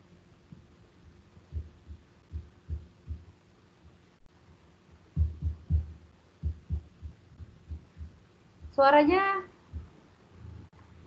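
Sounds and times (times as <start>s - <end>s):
faint steady hum: 0.0s - 11.0s
muffled thumps on microphone: 1.4s - 4.0s, 5.0s - 10.0s.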